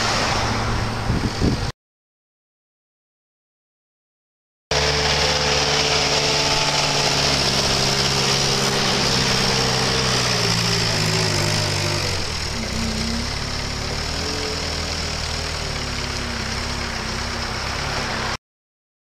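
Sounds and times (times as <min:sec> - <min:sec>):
forklift engine running: 0:04.7 - 0:18.4.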